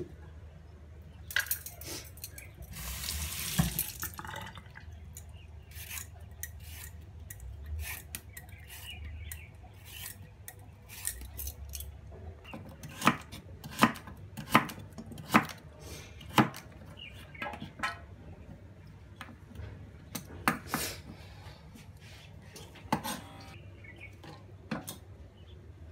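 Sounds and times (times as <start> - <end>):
peeler scraping a carrot: 5.6 - 10.3.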